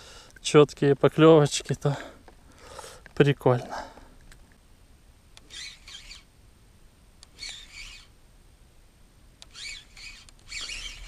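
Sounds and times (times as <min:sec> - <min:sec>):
spinning reel cranking: 0:05.4 - 0:06.3, 0:07.3 - 0:08.1, 0:09.5 - 0:11.0
faint reel click: 0:07.2 - 0:08.1, 0:09.4 - 0:11.0.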